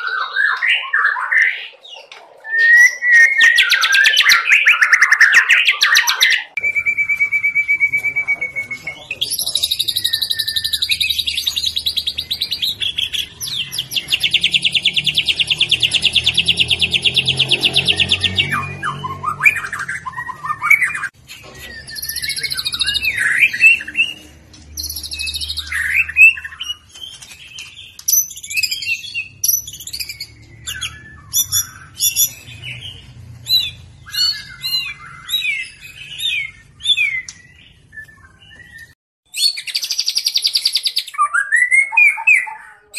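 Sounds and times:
bird whistling and chirping: 0:02.4 - 0:42.9
bird trilling: 0:27.8 - 0:38.4.

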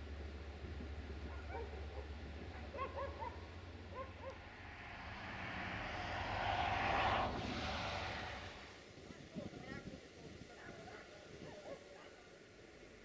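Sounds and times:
low steady rumble: 0:00.0 - 0:09.0
road vehicle passing: 0:00.9 - 0:09.0.

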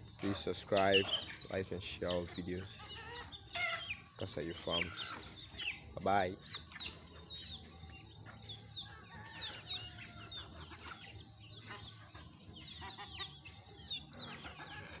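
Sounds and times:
chicks peeping: 0:00.0 - 0:15.0
hens clucking: 0:00.0 - 0:15.0.

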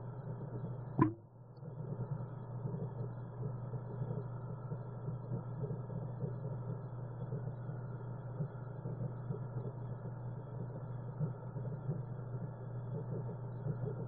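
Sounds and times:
low pump hum: 0:00.0 - 0:14.0
air bubbles bubbling: 0:01.0 - 0:01.2.

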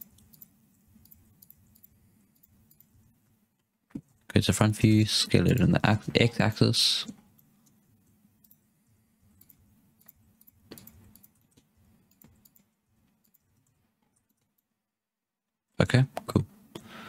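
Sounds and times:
keyboard and mouse clicks: 0:00.0 - 0:03.0, 0:07.0 - 0:08.6, 0:09.4 - 0:14.7
faint low hum: 0:00.0 - 0:14.8.

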